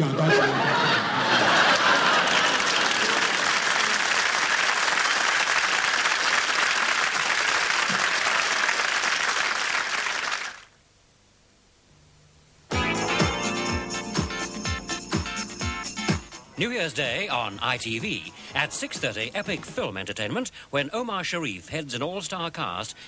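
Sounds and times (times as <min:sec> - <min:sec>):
audience applauding: 0:01.1 - 0:10.7.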